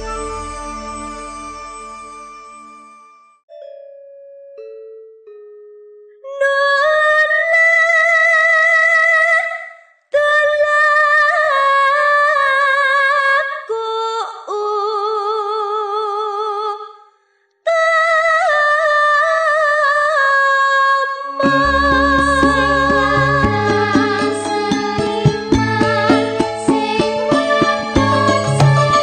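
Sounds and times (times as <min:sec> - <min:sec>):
woman singing with vibrato: 0:06.3 - 0:17.0, 0:17.7 - 0:29.0.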